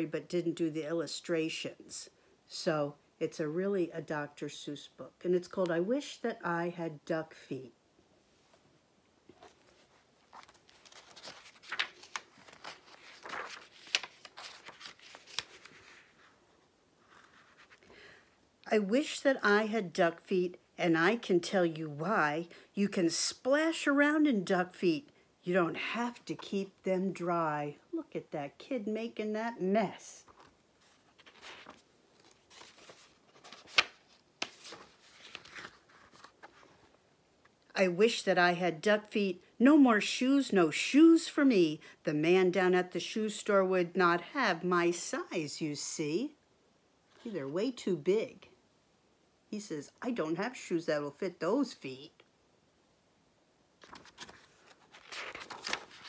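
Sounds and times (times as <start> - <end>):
book pages rustling and flapping: 9.3 - 17.9, 30.2 - 37.0, 53.8 - 56.0.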